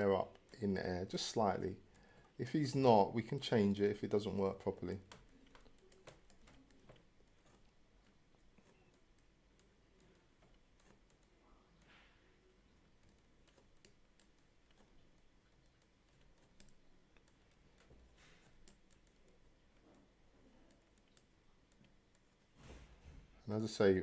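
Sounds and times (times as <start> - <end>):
mouse and keyboard clicking: 4.0 - 11.9, 12.7 - 22.3.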